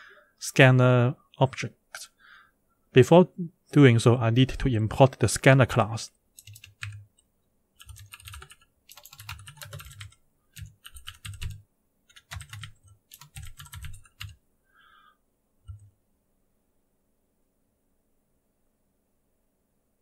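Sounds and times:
typing on computer keyboard: 0:06.4 - 0:07.1, 0:07.8 - 0:14.4, 0:15.7 - 0:15.9.

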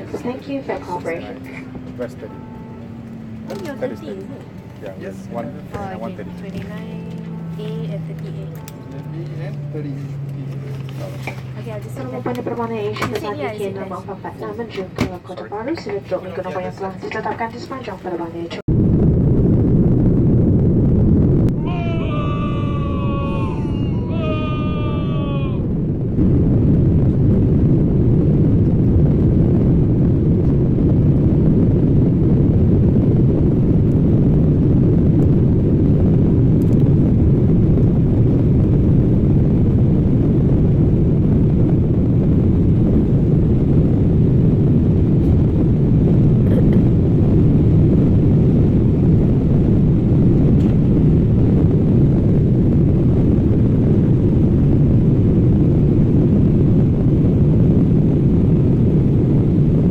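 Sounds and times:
low rumble of engines and airflow: 0:00.0 - 0:59.9.

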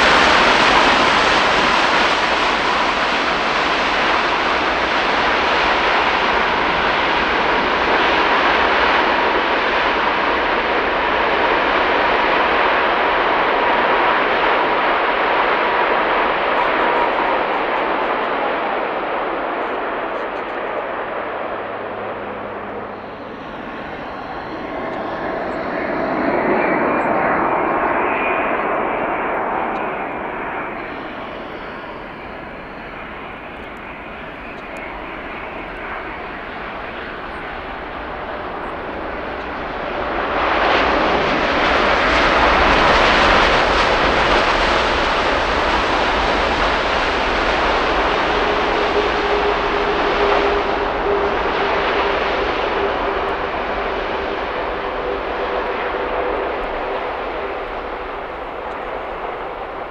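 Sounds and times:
jet engines: 0:00.0 - 0:59.9
jet reverse thrust roar: 0:00.0 - 0:59.9
steady tone: 0:19.4 - 0:34.5.

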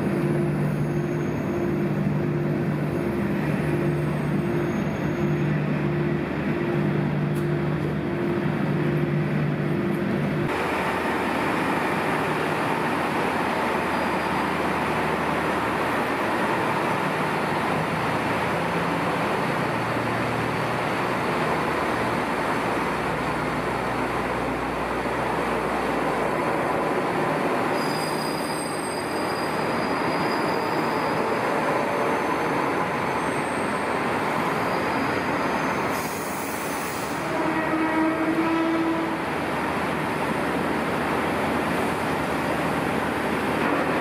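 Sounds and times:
diesel railcar engine running: 0:00.0 - 0:44.0.

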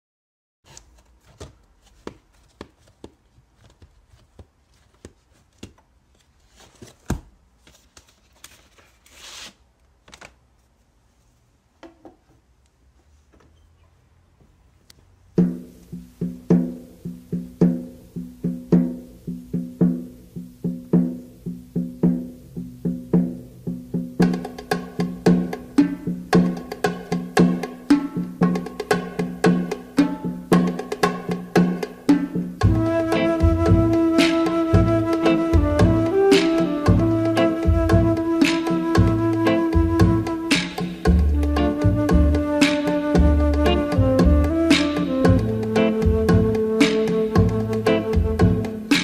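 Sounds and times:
vinyl records clicking and knocking: 0:00.7 - 0:08.2, 0:11.8 - 0:12.5.

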